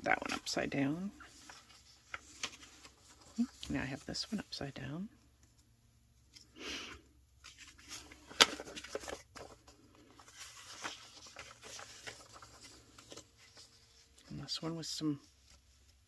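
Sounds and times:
paper rustling and sliding: 0.0 - 4.6, 7.4 - 16.0.

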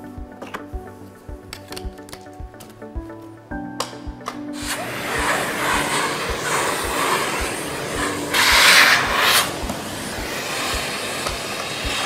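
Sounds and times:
background music with beat: 0.0 - 12.0
vacuum cleaner running: 4.6 - 12.0.

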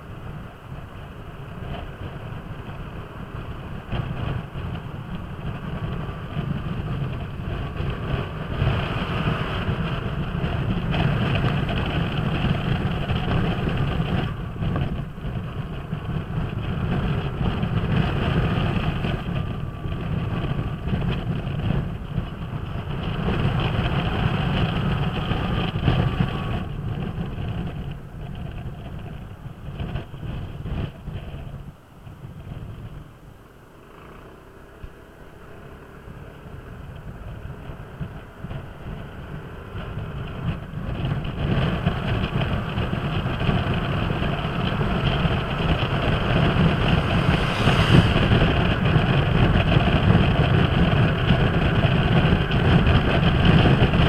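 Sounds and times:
wind on microphone: 0.0 - 33.2, 36.1 - 54.0
scooter engine running: 33.7 - 54.0.

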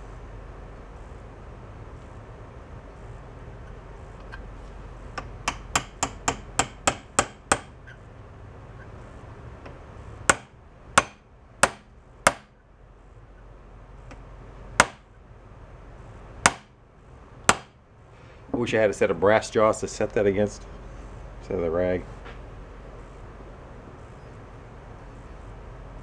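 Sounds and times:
hammer striking metal punch: 5.2 - 7.8, 10.3 - 12.6, 14.8 - 15.1, 16.4 - 16.8, 17.5 - 17.8.

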